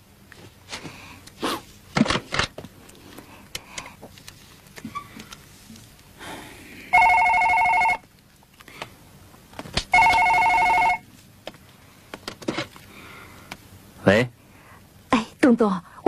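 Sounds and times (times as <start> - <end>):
telephone ringing: 6.9 - 8.1, 9.9 - 11.1.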